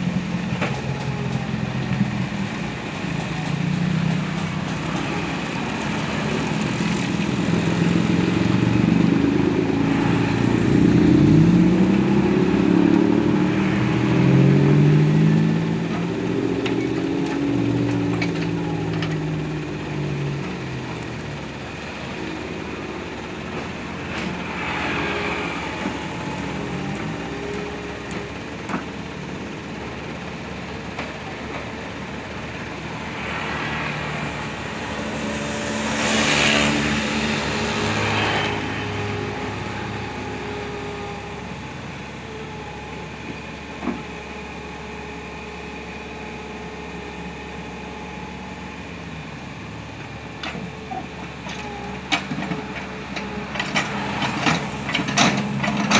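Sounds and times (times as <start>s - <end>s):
excavator diesel engine running: 0.0s - 55.9s
motor scooter passing: 33.2s - 40.2s.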